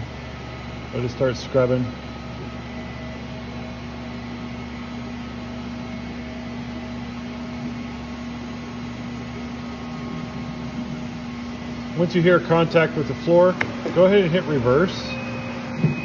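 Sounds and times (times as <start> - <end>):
floor scrubber motor humming: 5.9 - 16.0.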